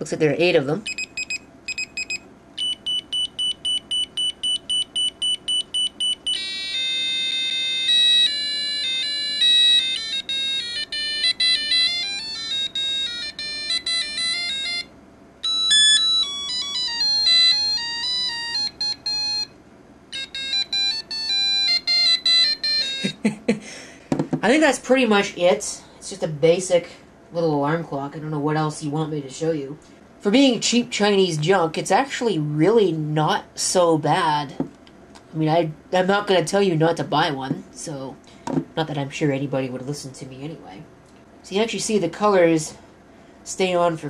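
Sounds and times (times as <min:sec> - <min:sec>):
electronic beeper melodies: 0:00.8 - 0:23.2
alarm clock rapid beeping: 0:00.9 - 0:19.5, 0:20.2 - 0:23.1.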